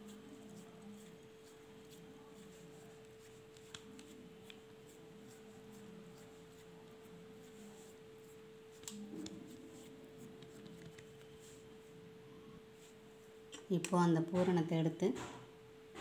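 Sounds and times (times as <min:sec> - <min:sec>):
fingers patting dough: 0:00.0 - 0:11.8
steady low hum: 0:00.0 - 0:16.0.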